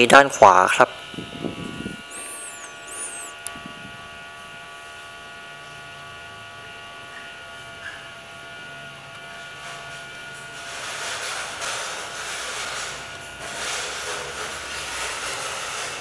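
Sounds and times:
electrical hum and buzz: 0:00.0 - 0:16.0
brief high chirps: 0:02.0 - 0:03.4.

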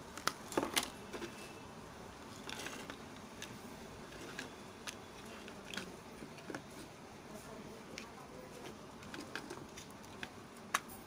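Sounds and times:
plastic parts clicking together: 0:02.4 - 0:06.6.

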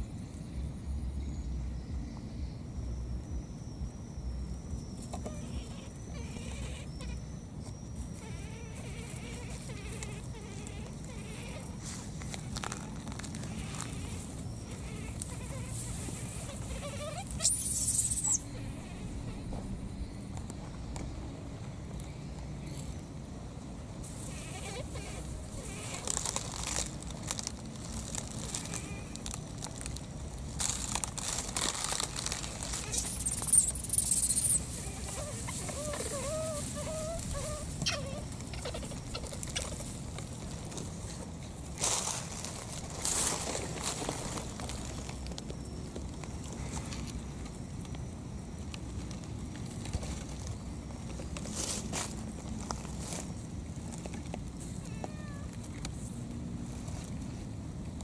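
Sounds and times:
high insect buzz: 0:00.0 - 0:21.2, 0:24.0 - 0:45.7
grass rustling: 0:04.6 - 0:21.2, 0:24.0 - 0:54.9
baby monkey crying: 0:05.2 - 0:07.4, 0:08.1 - 0:19.5, 0:24.3 - 0:26.9, 0:32.3 - 0:39.8.

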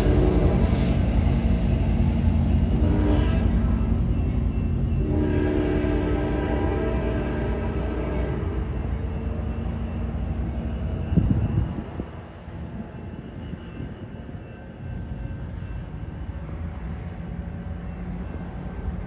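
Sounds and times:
diesel locomotive rumbling: 0:00.0 - 0:19.0.

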